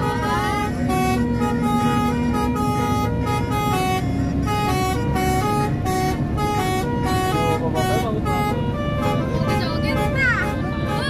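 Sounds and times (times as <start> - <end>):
bus engine rumble: 0.0 - 11.0
melodic bus horn tune: 0.0 - 11.0.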